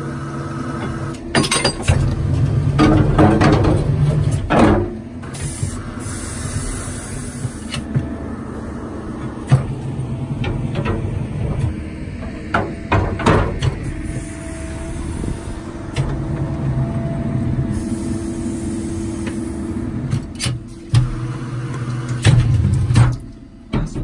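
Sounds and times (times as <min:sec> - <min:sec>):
drill mechanical hum: 0:05.0 - 0:22.5.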